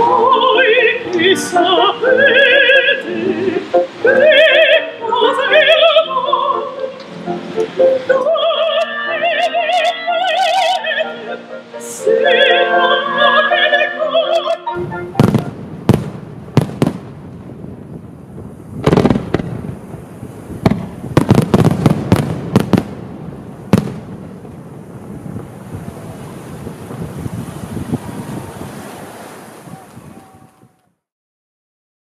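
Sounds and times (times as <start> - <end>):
operatic singing with vibrato: 0.0 - 15.6
fireworks bangs: 14.8 - 28.4.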